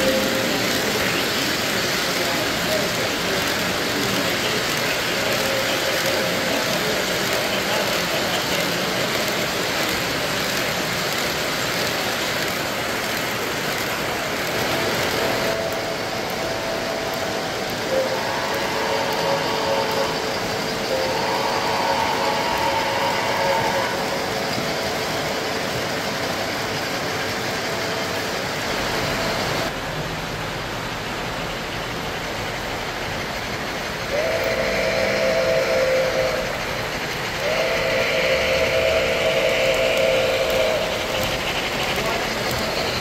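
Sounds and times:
running train noise: 0.0s - 43.0s
electronic steam whistle: 15.5s - 25.4s, 34.1s - 43.0s.

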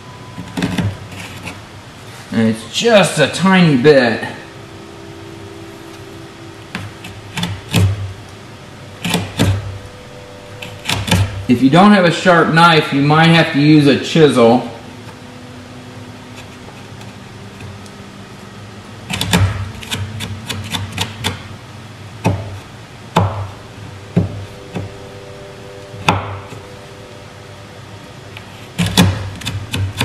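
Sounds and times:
knife scraping wood: 0.4s - 1.6s.

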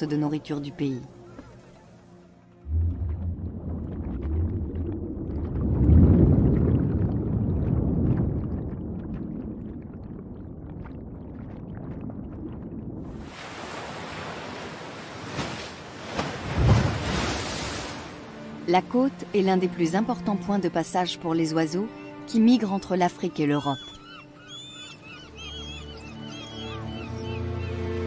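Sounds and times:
ocean waves breaking: 1.2s - 10.3s, 12.2s - 18.8s
low rumble: 2.6s - 13.3s.

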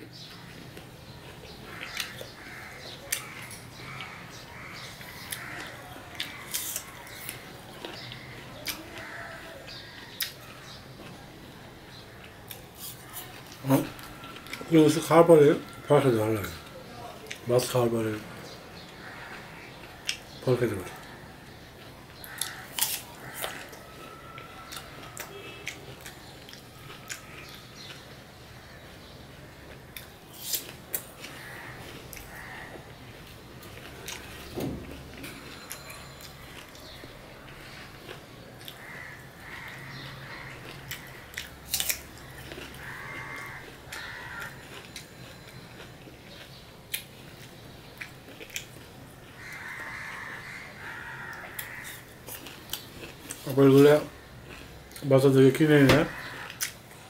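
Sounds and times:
person chewing crisp apple: 0.2s - 17.5s, 18.8s - 55.1s, 56.0s - 57.0s
apple slices crunching: 22.2s - 28.0s, 29.6s - 32.6s, 37.6s - 56.8s.

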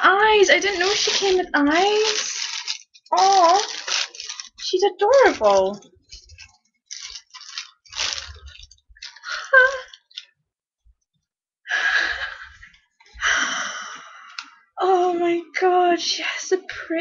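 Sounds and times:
plastic wrapping crinkling: 0.0s - 10.3s.

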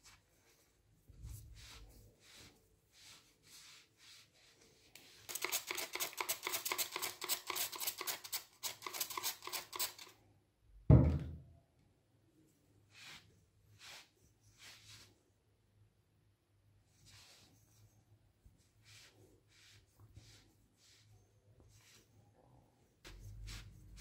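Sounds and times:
spray bottle squirting: 5.3s - 10.1s
loud thump: 10.9s - 11.5s.

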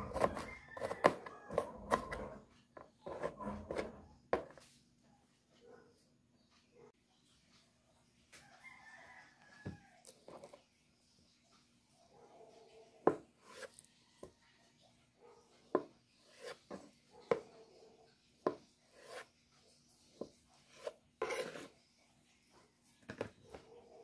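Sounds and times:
knife scraping: 0.0s - 4.6s, 13.0s - 13.9s, 15.7s - 17.6s, 18.4s - 21.9s.

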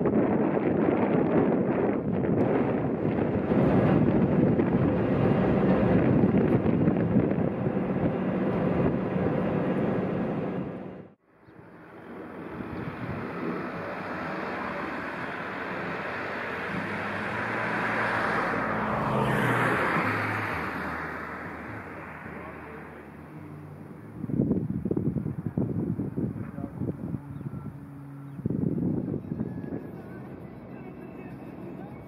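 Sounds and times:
wind buffeting microphone: 0.0s - 32.0s
calm outdoor ambience: 7.4s - 32.0s.

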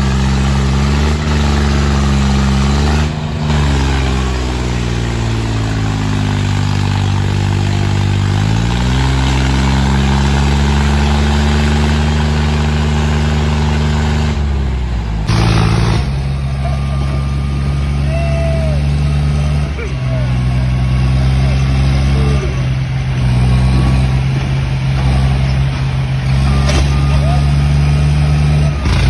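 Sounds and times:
tractor diesel engines under load: 0.0s - 29.0s.

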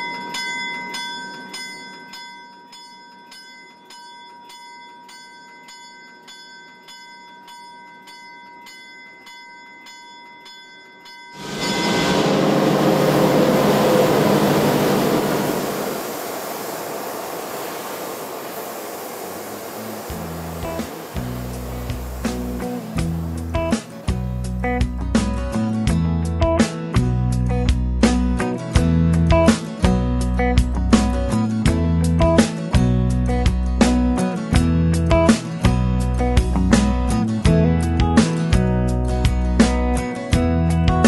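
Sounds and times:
locomotive bell ringing: 0.0s - 25.2s
loud rushing rumble: 11.4s - 24.7s.

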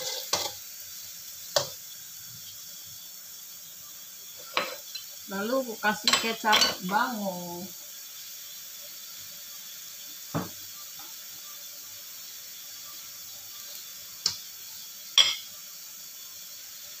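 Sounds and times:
broth simmering in pan: 0.0s - 17.0s
knocks against pan: 10.3s - 10.6s.

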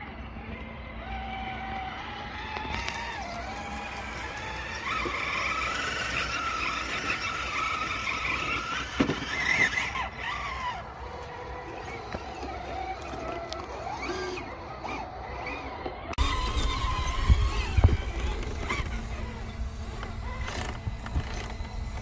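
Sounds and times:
electric motors whining: 0.0s - 22.0s.

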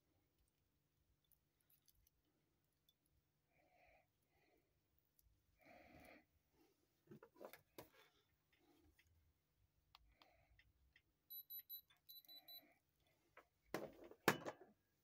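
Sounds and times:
diamond tester beeping: 11.3s - 12.8s.

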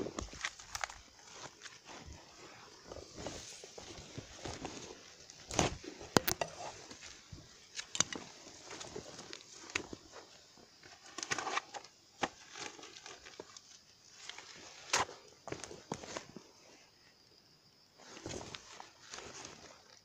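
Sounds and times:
dry rustling and crackling: 0.0s - 16.4s.

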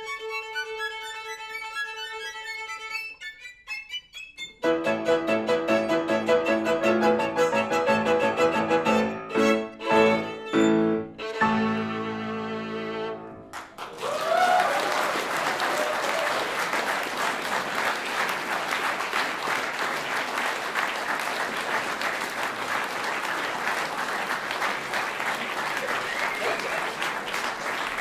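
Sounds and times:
violins and piano chord: 4.6s - 13.7s
audience applause: 13.5s - 28.0s.

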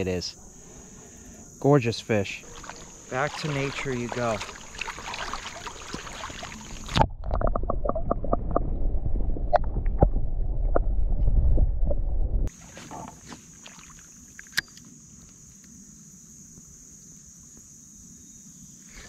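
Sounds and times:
open-air water sounds: 0.0s - 11.7s, 12.4s - 15.6s
water splash: 2.4s - 10.2s
muffled underwater rumble: 6.5s - 12.5s.

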